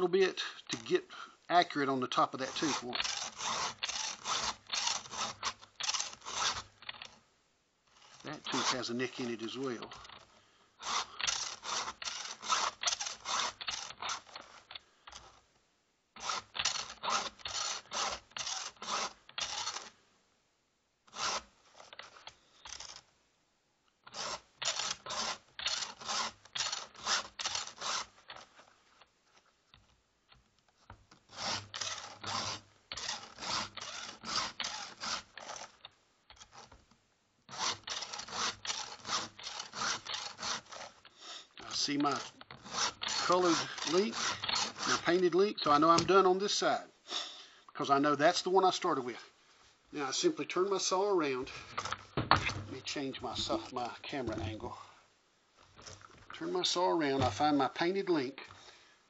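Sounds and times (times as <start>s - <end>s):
files rasping on chainsaw chain: 0.0s - 7.2s, 7.9s - 15.4s, 16.2s - 20.0s, 21.1s - 23.0s, 24.0s - 28.6s, 31.3s - 36.8s, 37.5s - 47.4s.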